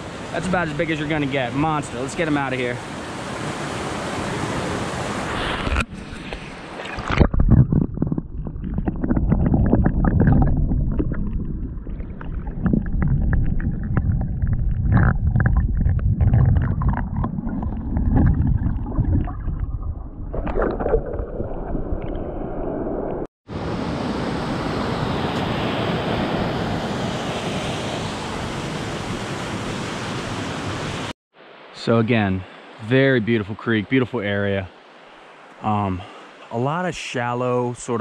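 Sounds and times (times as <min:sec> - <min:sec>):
stream rushing above water: 0:00.0 - 0:07.2, 0:23.5 - 0:37.8
muffled underwater rushing: 0:05.2 - 0:23.3
small underwater clicks and knocks: 0:12.1 - 0:17.3.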